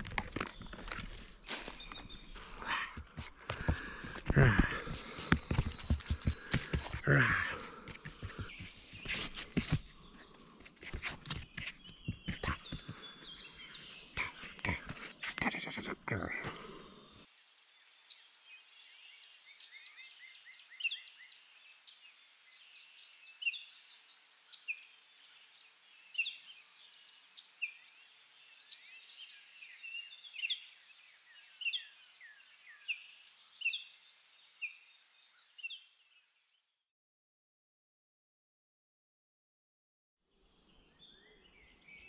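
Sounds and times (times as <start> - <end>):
rustling and crunching: 0.0 - 7.0, 8.2 - 12.6
distant birdsong: 0.0 - 36.6.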